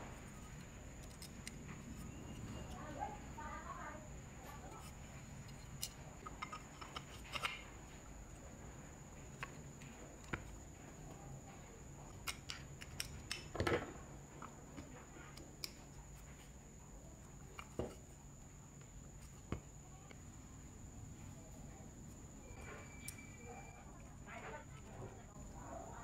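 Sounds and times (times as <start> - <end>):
metal parts clicking and scraping: 0.1 - 2.9, 4.4 - 8.1.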